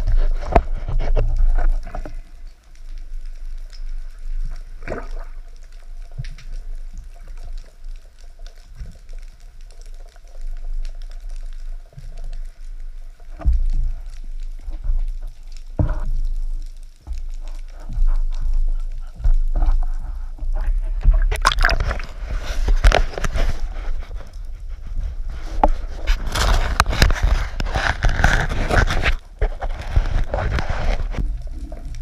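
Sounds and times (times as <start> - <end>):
fine crackle: 0.0 - 32.0
muffled underwater rumble: 0.0 - 32.0.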